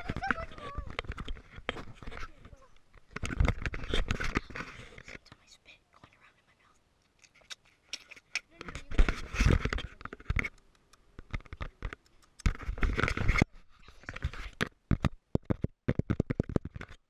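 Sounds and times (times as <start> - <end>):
fingers rubbing on camera: 0.0 - 5.6, 7.2 - 17.0
fingers tapping on camera: 7.5 - 13.4
sharp clicks: 9.7 - 13.2.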